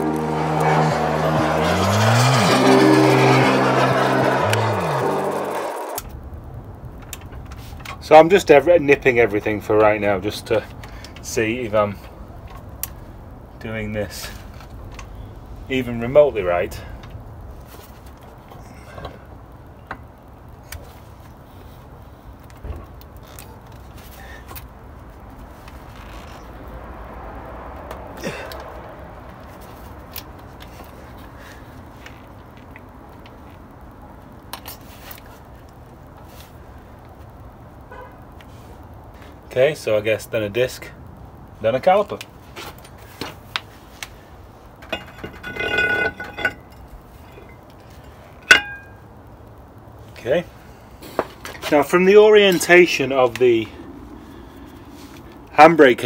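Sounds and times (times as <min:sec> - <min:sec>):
metal scraping and clinking: 0:44.8 - 0:49.0.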